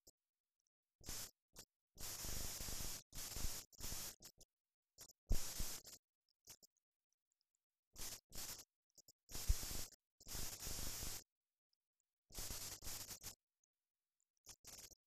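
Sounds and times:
static hiss and crackle: 1.0s - 6.8s, 7.9s - 11.3s, 12.3s - 13.5s, 14.4s - 15.0s.

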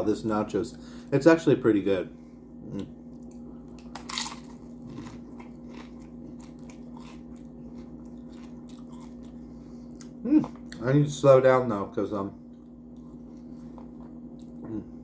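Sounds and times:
person crunching a chip: 3.7s - 9.4s.

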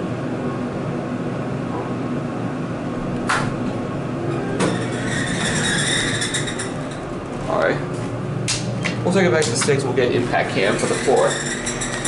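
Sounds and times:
elevator hum: 0.0s - 12.0s
elevator doors hissing open: 3.2s - 7.6s, 10.5s - 12.0s.

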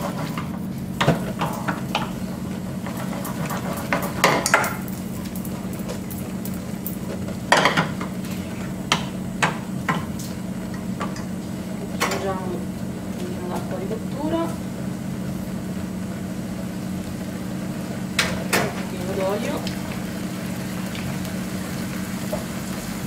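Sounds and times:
steady low hum: 0.0s - 23.0s
wooden spoon scraping pan: 2.8s - 4.3s
pan and spoon clattering: 2.8s - 11.3s.

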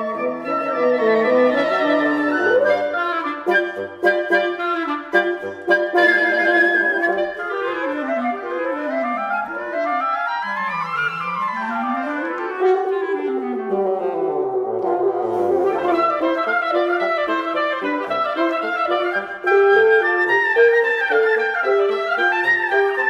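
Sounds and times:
wind quintet playing chamber music: 0.0s - 23.0s.

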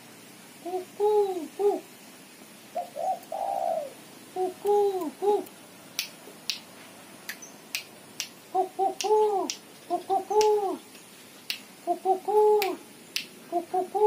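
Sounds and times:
dove cooing: 0.6s - 1.9s, 2.7s - 5.5s, 8.5s - 10.9s, 11.8s - 12.8s, 13.5s - 14.0s
sharp short clicks: 7.3s - 8.4s, 9.0s - 9.7s, 10.3s - 11.7s.

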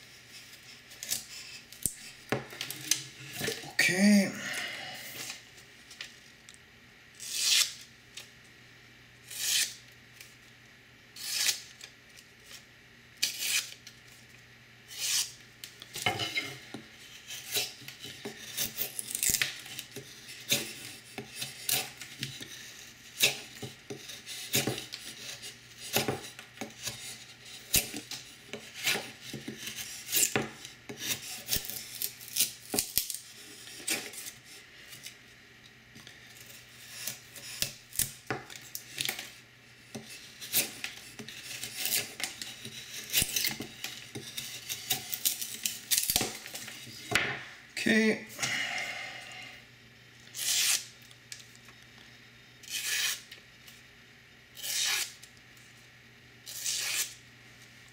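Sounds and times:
knife scraping wood shavings: 0.3s - 3.6s, 7.2s - 7.9s, 9.3s - 9.8s, 11.2s - 11.8s, 13.2s - 13.8s, 14.9s - 15.4s, 16.2s - 35.1s, 36.4s - 38.1s, 39.9s - 47.0s, 50.3s - 50.9s, 52.6s - 53.3s, 54.6s - 55.3s, 56.4s - 57.2s.

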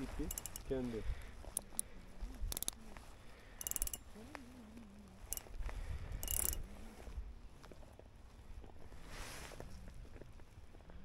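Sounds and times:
fishing reel clicking rasps: 0.2s - 0.7s, 2.5s - 2.8s, 3.6s - 4.0s, 5.3s - 5.5s, 6.2s - 6.6s.

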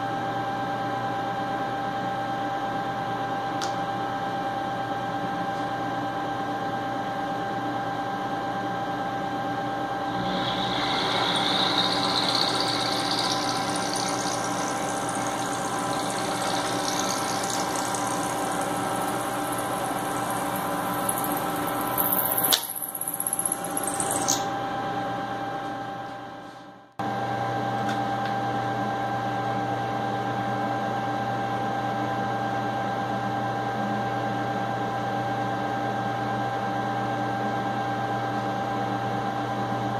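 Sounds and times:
milling machine motor hum: 10.0s - 24.4s
high-pitched metal cutting: 10.0s - 24.5s.

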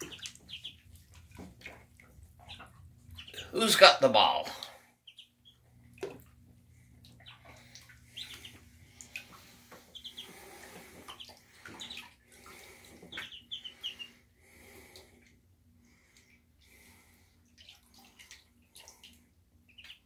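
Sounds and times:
duckling peeps: 0.0s - 3.5s, 5.0s - 6.3s, 6.9s - 14.2s, 17.4s - 20.0s
ducklings splashing in water: 0.0s - 20.0s.

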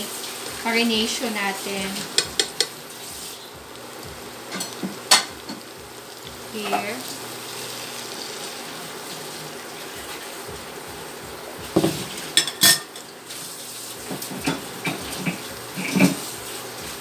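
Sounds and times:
sauce hissing in hot pan: 0.0s - 17.0s
glass clinking on pan: 12.4s - 13.0s
spatula scraping pan: 14.1s - 16.3s.

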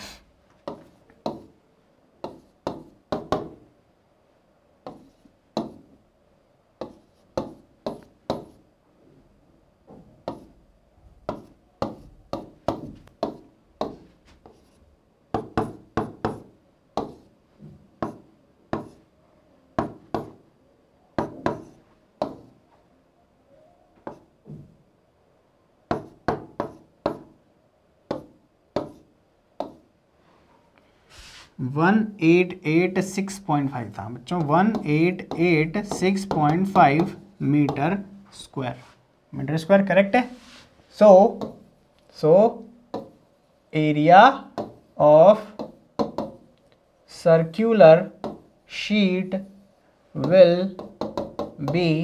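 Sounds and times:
pen tapping on writing board: 0.6s - 1.5s, 2.2s - 3.6s, 4.8s - 5.8s, 6.8s - 8.6s, 9.9s - 10.5s, 11.2s - 14.7s, 15.3s - 19.0s, 19.8s - 20.4s, 21.2s - 22.5s, 25.9s - 27.4s, 28.1s - 29.0s, 29.6s - 29.8s, 34.3s - 37.8s, 42.9s - 43.2s, 44.5s - 44.8s, 45.5s - 46.4s, 48.2s - 48.4s, 50.2s - 51.9s.

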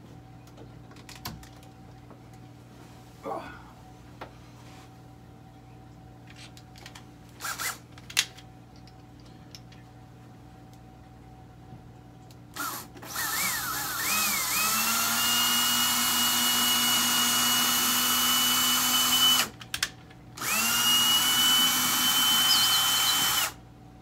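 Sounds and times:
cordless drill whining: 7.4s - 7.8s, 12.6s - 19.5s, 20.4s - 23.6s
drill clicks: 12.6s - 15.4s, 20.4s - 23.6s.

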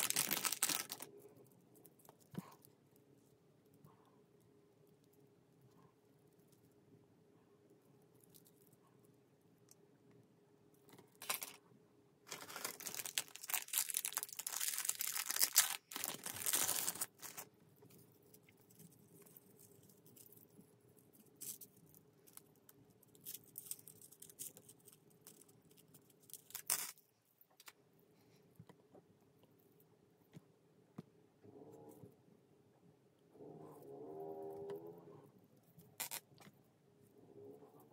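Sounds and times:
plastic packaging crinkling: 0.0s - 1.2s, 11.2s - 11.6s, 12.3s - 17.5s.

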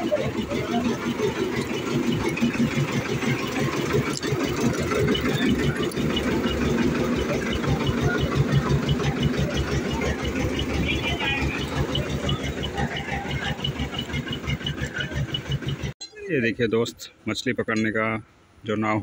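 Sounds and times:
toy train engine chugging: 0.0s - 16.0s.

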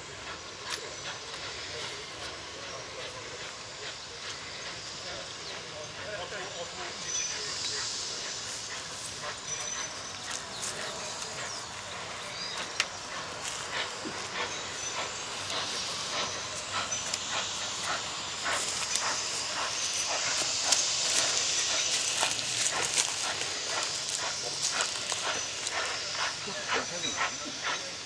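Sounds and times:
steam locomotive hissing: 0.0s - 28.0s.

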